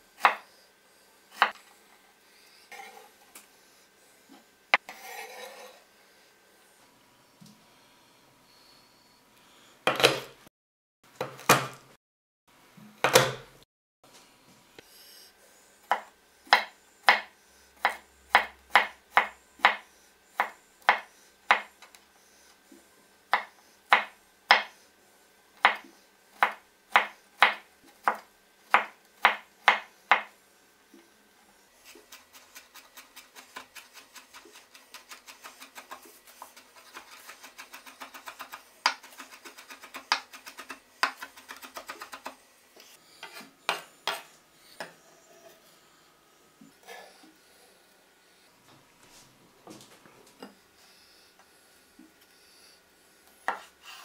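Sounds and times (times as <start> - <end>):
knife chopping on wooden board: 0.2 - 0.4, 9.9 - 10.3, 11.2 - 11.8, 13.0 - 13.5, 15.9 - 19.8, 20.4 - 21.7, 23.3 - 24.7, 25.6 - 30.3, 53.5 - 53.7.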